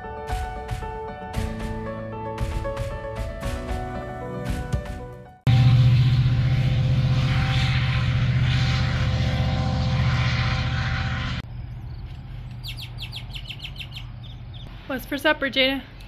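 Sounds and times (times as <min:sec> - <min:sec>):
rushing noise: 0:05.5 - 0:11.4
loud engine drone: 0:05.5 - 0:12.2.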